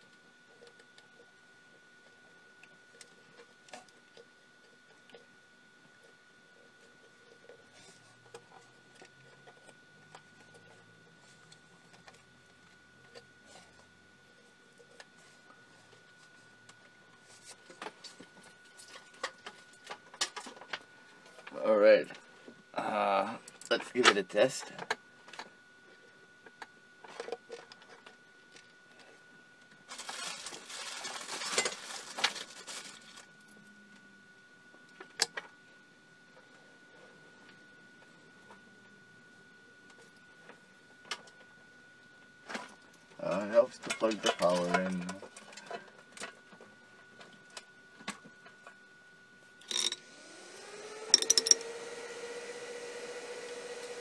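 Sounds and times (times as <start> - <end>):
faint high whine: 0.0 - 54.0
high-pitched whine: 49.6 - 51.9.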